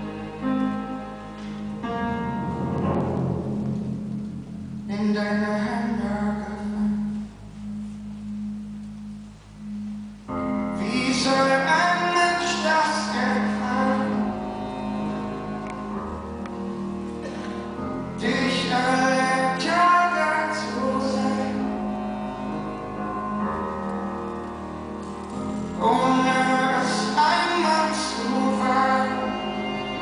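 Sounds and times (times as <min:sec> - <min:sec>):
sustained instruments: 0:00.0 - 0:30.0
person singing a slow ballad: 0:04.8 - 0:07.4, 0:10.7 - 0:15.3, 0:17.4 - 0:22.7, 0:25.5 - 0:30.0.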